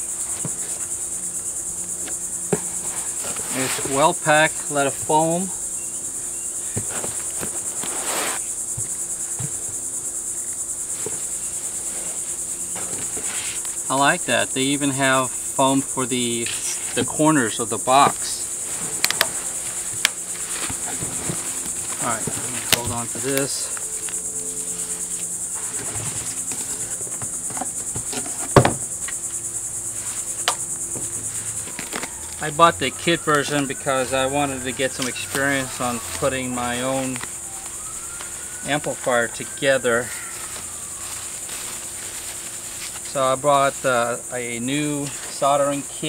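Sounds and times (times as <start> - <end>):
insects chirring: 0.0 - 46.0
cardboard packaging handled: 18.1 - 25.0
bubble wrap crinkling: 40.1 - 43.1.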